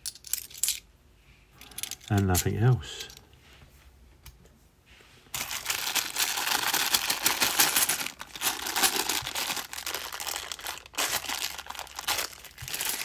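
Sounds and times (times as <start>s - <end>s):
plastic bag of coins crinkling: 5.3s - 13.0s.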